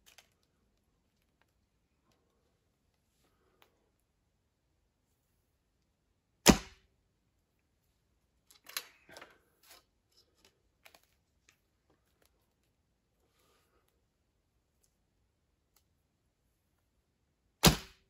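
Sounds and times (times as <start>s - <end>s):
handling clicks and rustles: 0.0s - 3.8s, 7.7s - 13.0s.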